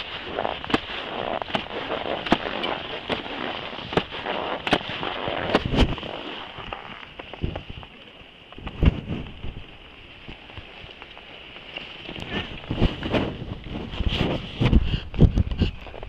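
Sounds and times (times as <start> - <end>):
jacket fabric rubbing microphone: 0.0 - 7.8, 12.1 - 16.0
skis scraping over snow: 0.0 - 16.0.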